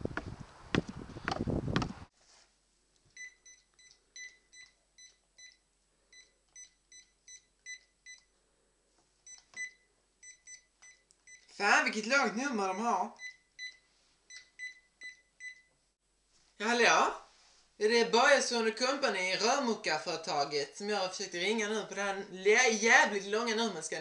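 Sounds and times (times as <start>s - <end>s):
phone keypad beeps: 3.2s - 8.3s, 9.3s - 11.5s, 13.2s - 15.7s.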